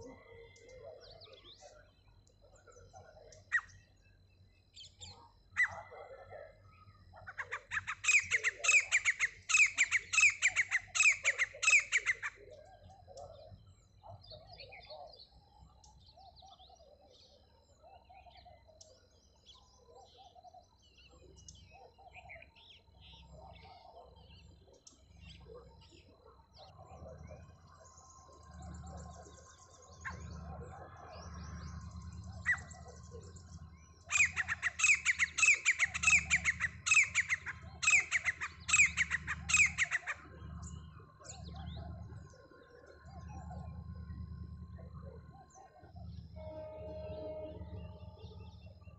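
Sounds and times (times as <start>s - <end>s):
bird chirps: 0.0s - 48.9s
francolin shrill repeated calls: 7.2s - 12.5s, 31.3s - 40.3s
low rumbling noise: 26.7s - 35.1s, 35.9s - 48.9s.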